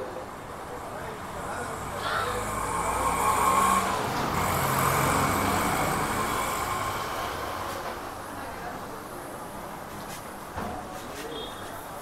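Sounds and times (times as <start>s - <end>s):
vehicle passing by: 1.0s - 8.1s.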